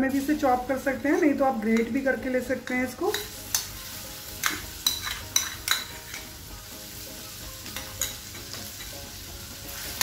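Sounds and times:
garlic sizzling in hot oil: 0:00.0 - 0:10.0
spoon clinking against pan: 0:02.6 - 0:03.8, 0:04.4 - 0:06.3, 0:07.6 - 0:09.0.

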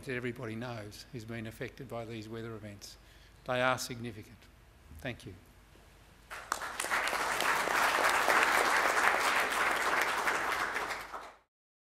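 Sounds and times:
audience applauding: 0:06.3 - 0:11.5.

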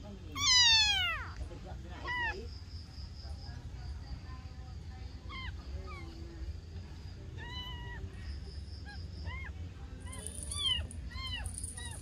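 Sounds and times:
kitten mewing: 0:00.4 - 0:01.4.

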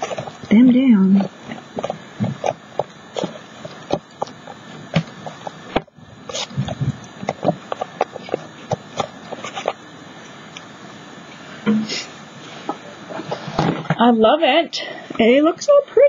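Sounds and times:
hands patting paper: 0:00.0 - 0:10.7.

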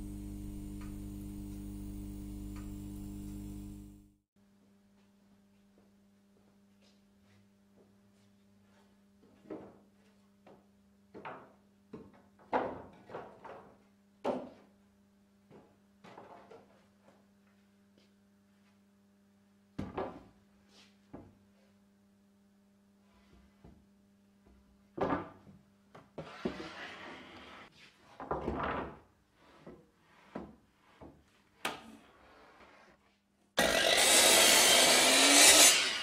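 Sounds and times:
board scraping along rack: 0:26.2 - 0:27.7.

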